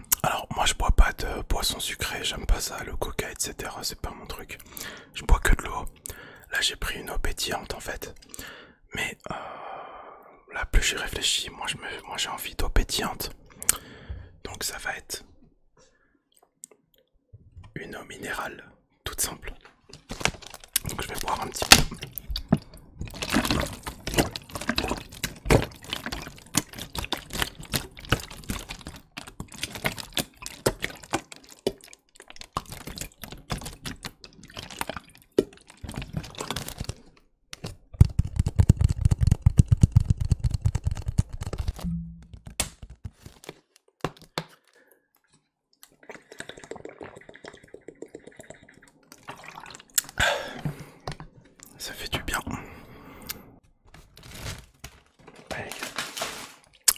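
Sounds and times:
person drinking from bottle: 0:19.2 - 0:37.7, 0:45.8 - 0:53.5
plastic bottle crackling: 0:19.9 - 0:44.8, 0:53.9 - 0:56.9
water glugging in bottle: 0:20.8 - 0:36.8, 0:45.9 - 0:51.1.

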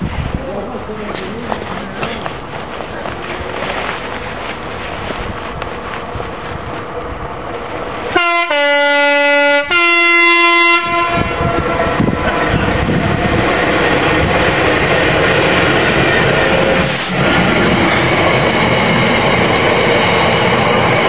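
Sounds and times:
train wheels rumbling on rails: 0:00.0 - 0:21.0
two-tone locomotive horn: 0:08.1 - 0:12.4.

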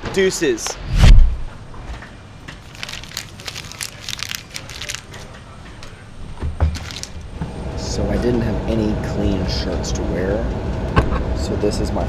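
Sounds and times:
crinkling and rustling: 0:01.8 - 0:06.0, 0:06.6 - 0:07.3.

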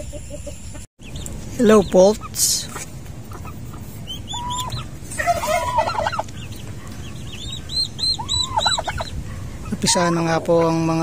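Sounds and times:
poults peeping: 0:00.0 - 0:11.0
adult fowl clucking: 0:02.2 - 0:10.4.

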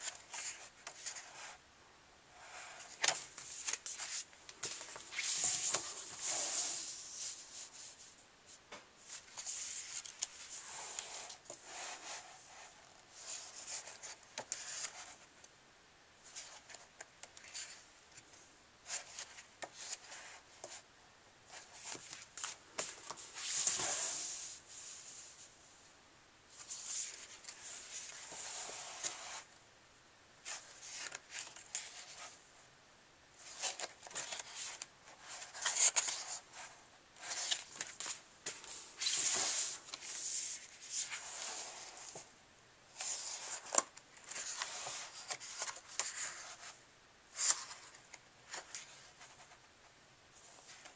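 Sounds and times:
paper pages turning and rustling: 0:02.7 - 0:07.9, 0:09.0 - 0:15.2, 0:21.5 - 0:24.6, 0:30.4 - 0:32.4, 0:33.4 - 0:42.3, 0:43.0 - 0:49.6.

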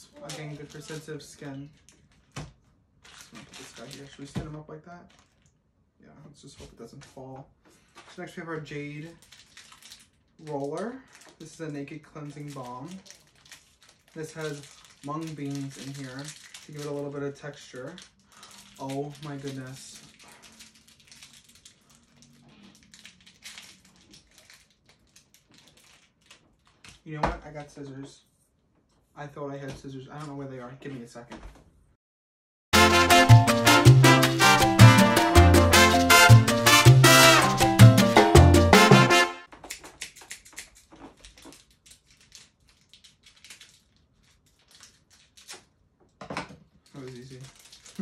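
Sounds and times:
wrapper crinkling: 0:00.0 - 0:04.4, 0:05.0 - 0:05.6, 0:07.8 - 0:27.1, 0:39.5 - 0:45.9, 0:46.7 - 0:48.0
salsa music: 0:32.7 - 0:39.5.

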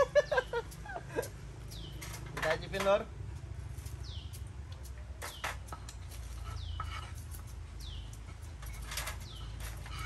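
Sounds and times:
bird chirping: 0:00.0 - 0:02.8, 0:03.8 - 0:10.0.

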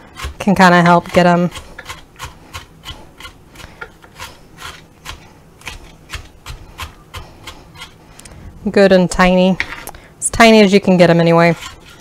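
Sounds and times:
blade scraping board: 0:00.0 - 0:08.0, 0:11.1 - 0:12.0
knife chopping on plastic board: 0:00.2 - 0:07.9.

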